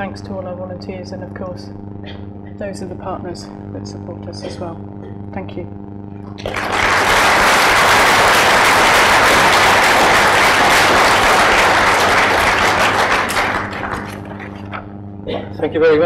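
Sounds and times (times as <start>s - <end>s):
audience applauding: 6.4s - 14.8s.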